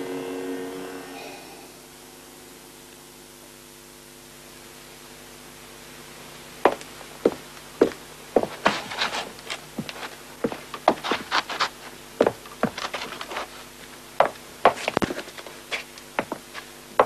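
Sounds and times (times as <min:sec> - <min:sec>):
footsteps on wooden floor: 0:06.7 - 0:13.5, 0:14.2 - 0:17.0.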